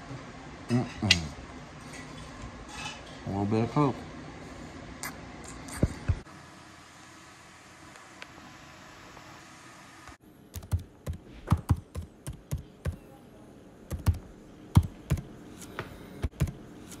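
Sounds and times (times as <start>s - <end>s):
room hum: 0.0s - 17.0s
keyboard typing taps: 10.6s - 13.0s, 13.9s - 14.2s, 14.8s - 15.3s, 16.2s - 16.6s.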